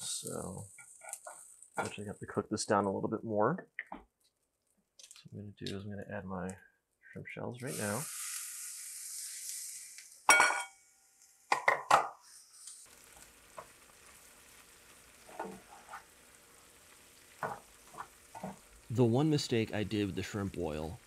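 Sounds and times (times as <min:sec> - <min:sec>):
shrimp shells sizzling in oil: 0:00.1 - 0:02.0, 0:07.7 - 0:11.6, 0:12.2 - 0:21.0.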